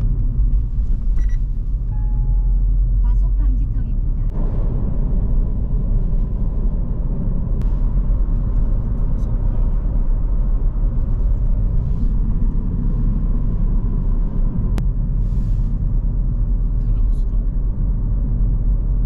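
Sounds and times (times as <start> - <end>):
car engine and road noise in cabin: 0.0 - 19.0.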